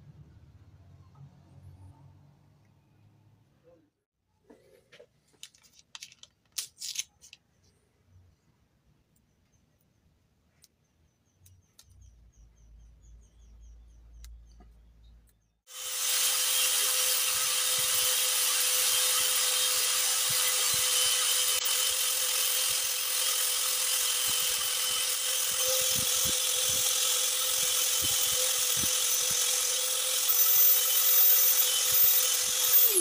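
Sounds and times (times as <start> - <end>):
belt sander grinding: 15.7 - 33.0.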